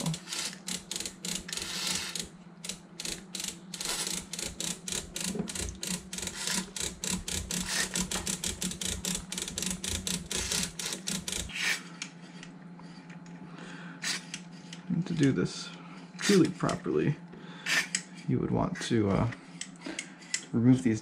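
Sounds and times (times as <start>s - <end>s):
rotary switch clicking: 0.0s - 12.1s.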